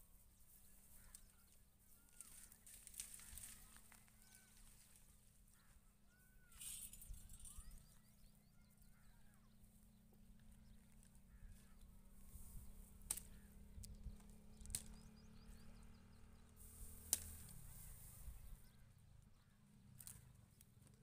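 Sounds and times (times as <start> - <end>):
small bird chirps: 0.2 - 20.3
sharp clicks: 13.0 - 15.0.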